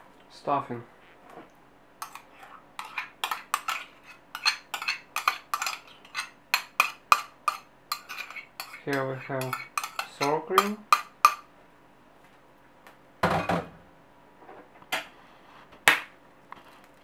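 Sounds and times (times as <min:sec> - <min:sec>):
spoon scraping plastic tub: 0:02.0 - 0:10.8.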